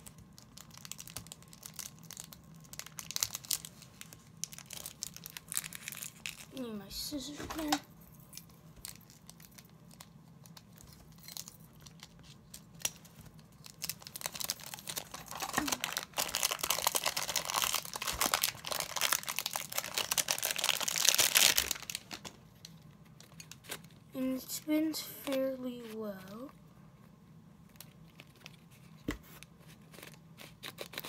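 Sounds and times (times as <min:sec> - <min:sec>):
plastic packaging crinkling: 0:00.0 - 0:07.8, 0:08.6 - 0:24.3.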